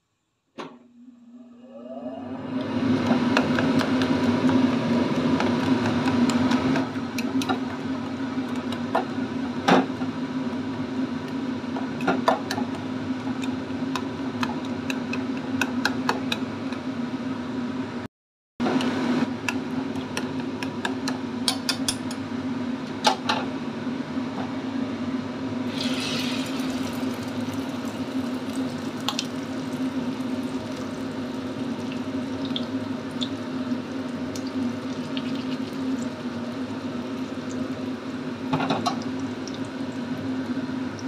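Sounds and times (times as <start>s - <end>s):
egg sizzling in hot oil: 25.7s - 40.1s.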